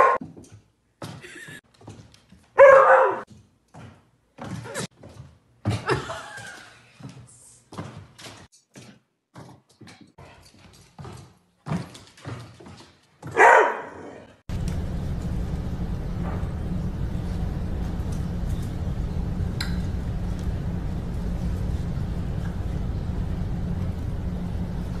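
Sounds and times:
dog barking: 0:00.0 - 0:00.2, 0:02.6 - 0:03.3, 0:13.3 - 0:14.3
dog claws clicking on wood floor: 0:07.8 - 0:13.4
steady low hum: 0:14.5 - 0:25.0.

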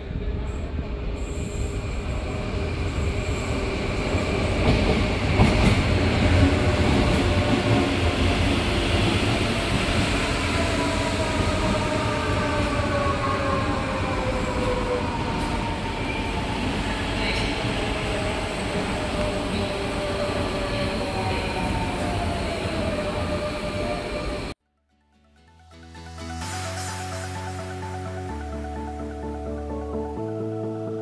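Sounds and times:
train wheels rumbling on rails: 0:00.0 - 0:24.5.

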